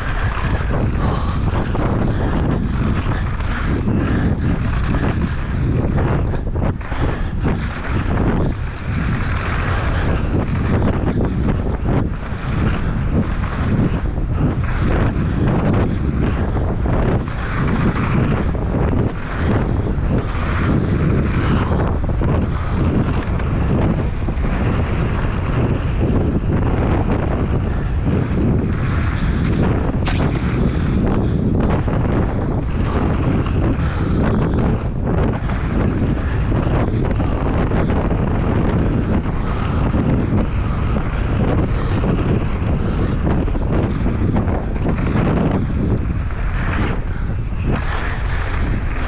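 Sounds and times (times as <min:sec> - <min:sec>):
bike rattling: 0:00.0 - 0:49.0
tyres rumbling on dirt: 0:00.0 - 0:49.0
wind buffeting microphone: 0:00.0 - 0:49.0
bike knocking over bumps: 0:29.4 - 0:31.8.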